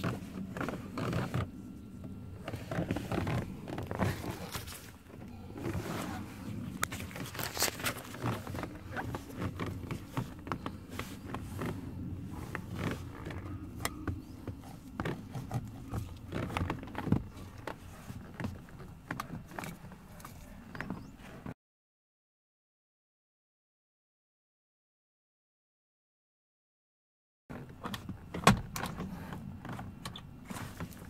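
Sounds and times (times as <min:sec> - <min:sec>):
handling clicks taps and rustles: 0:00.0 - 0:21.5.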